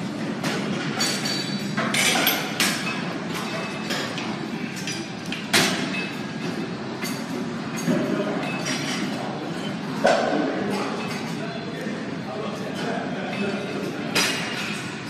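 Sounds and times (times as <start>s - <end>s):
metal clanks from gym equipment: 0.2s - 11.4s, 12.7s - 15.0s.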